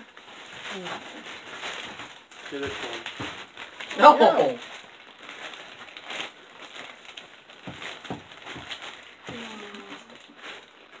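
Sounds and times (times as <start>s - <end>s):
faint rustling: 0.0s - 11.0s
low voice murmur: 9.3s - 10.2s.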